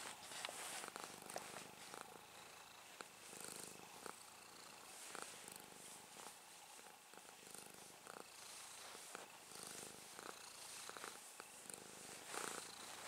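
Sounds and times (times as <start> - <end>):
hand rubbing fur: 0.0 - 3.7, 4.5 - 13.0
cat purring: 0.0 - 13.0.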